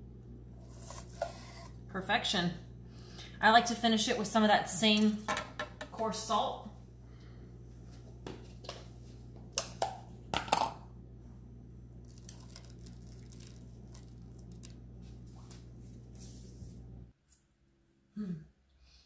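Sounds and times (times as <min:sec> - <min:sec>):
steady low hum: 0:00.0 - 0:17.2
salt crystals crunching: 0:12.0 - 0:14.8.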